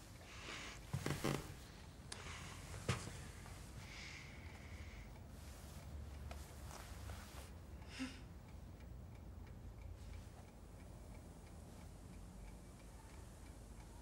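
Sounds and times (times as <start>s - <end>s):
low room hum: 0.0s - 14.0s
clock ticking: 4.2s - 14.0s.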